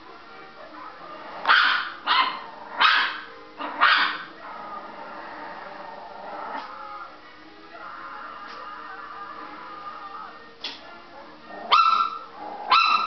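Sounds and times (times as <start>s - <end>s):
television film soundtrack: 0.0s - 13.0s
small dog barking: 1.4s - 4.3s, 11.7s - 13.0s.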